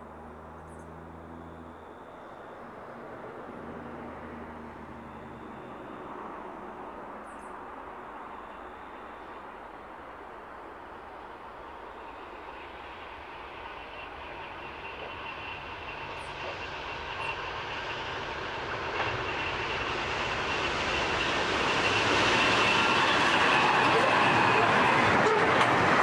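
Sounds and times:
freight train passing: 0.0 - 26.0.

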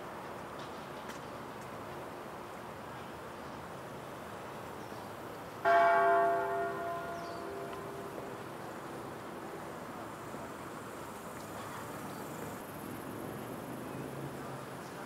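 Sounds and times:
church bell ringing: 5.6 - 9.0.

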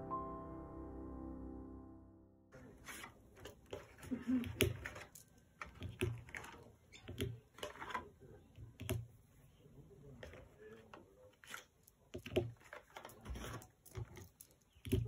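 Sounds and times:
crayons tapping on paper: 3.4 - 9.1, 10.2 - 15.0.

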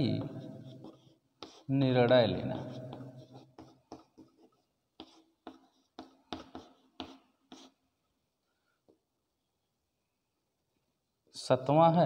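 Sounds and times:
chalk scratching on chalkboard: 0.0 - 8.0.

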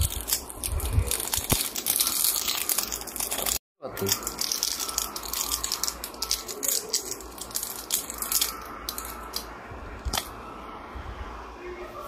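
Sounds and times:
plastic packaging crinkling: 0.0 - 9.5.

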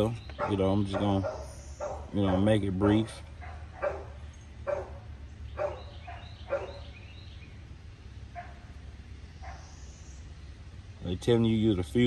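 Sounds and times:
dog barking faintly: 0.4 - 5.0.

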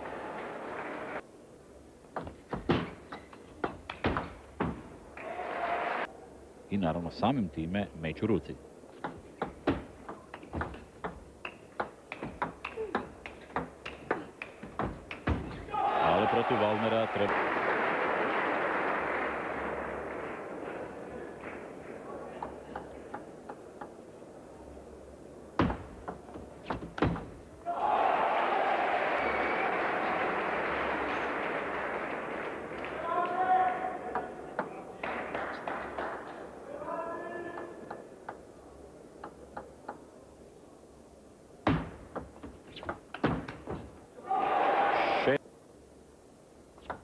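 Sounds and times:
crowd cheering and applause: 0.0 - 1.2, 5.2 - 6.1, 15.7 - 21.1, 27.7 - 34.0, 44.2 - 45.4
table tennis ball clicks: 9.0 - 15.4.

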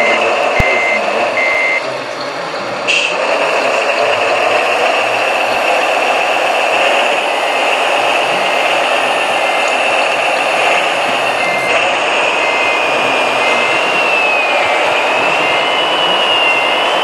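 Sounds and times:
reversing beeps: 0.0 - 1.9, 5.4 - 17.0
high whine with running noise: 0.0 - 17.0.

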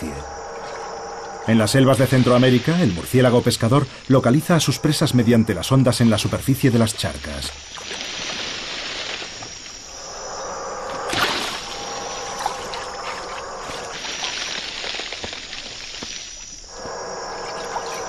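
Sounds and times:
insects chirring: 0.0 - 18.0
steady hiss: 0.0 - 18.0
splash on water: 7.5 - 9.9.

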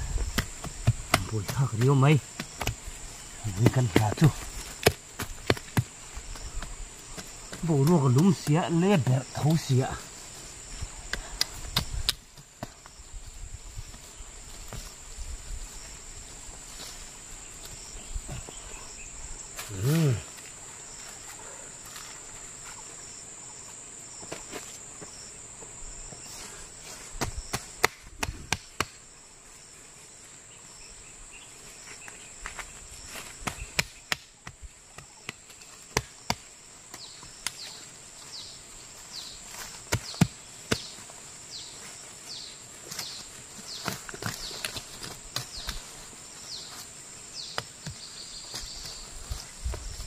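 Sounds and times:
plants snapping and rustling: 11.0 - 12.8, 27.1 - 29.0, 42.8 - 45.9.

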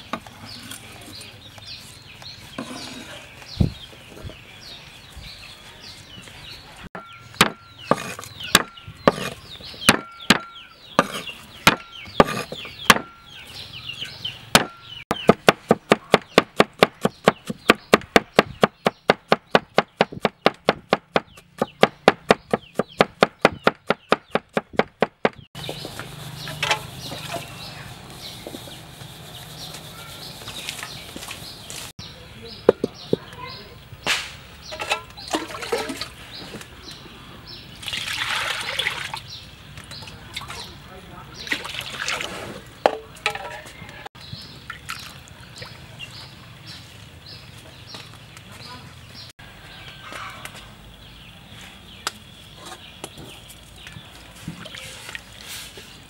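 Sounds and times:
cleaver chopping on wooden board: 7.0 - 13.2, 14.6 - 25.4.

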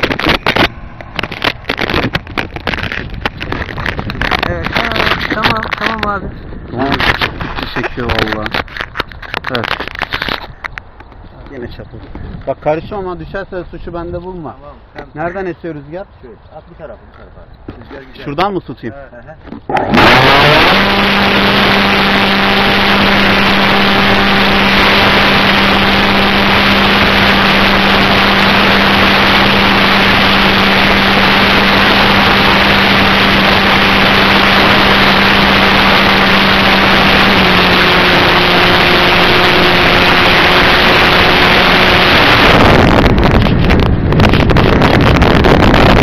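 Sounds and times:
motor and propeller drone: 0.0 - 6.1, 19.7 - 46.0
wind rush: 0.0 - 14.9, 19.6 - 46.0.

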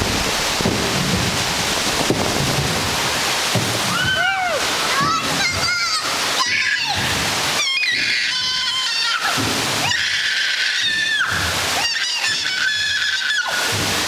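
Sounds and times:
rushing splashing water: 0.0 - 14.0
child squealing: 7.6 - 13.7.

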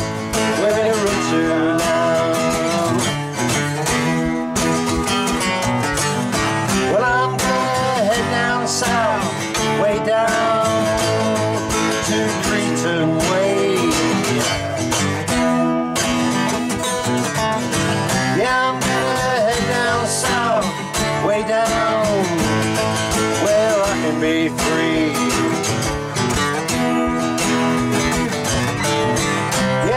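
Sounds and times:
man singing: 0.0 - 4.4, 5.9 - 16.0, 18.0 - 26.1, 29.1 - 29.9
acoustic guitars strummed: 0.0 - 29.9.

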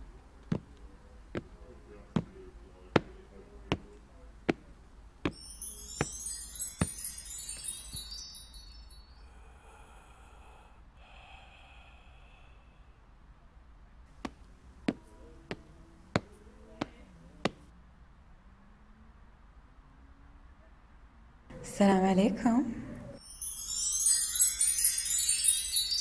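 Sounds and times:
footsteps: 0.5 - 0.8, 2.2 - 2.4, 3.0 - 8.2
sparkling chime cascade: 5.3 - 9.3, 23.2 - 26.0.

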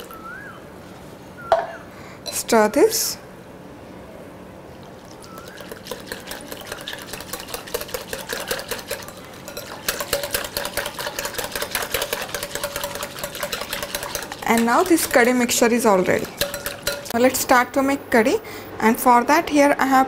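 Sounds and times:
batter sloshing: 5.0 - 17.2
whisk clicking against glass bowl: 5.4 - 17.3.

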